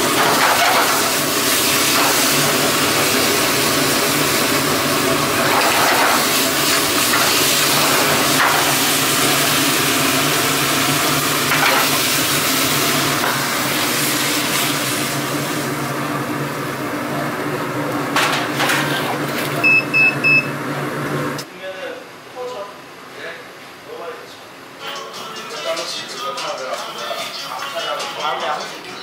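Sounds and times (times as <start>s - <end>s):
meat sizzling in a pan: 0.0s - 15.8s.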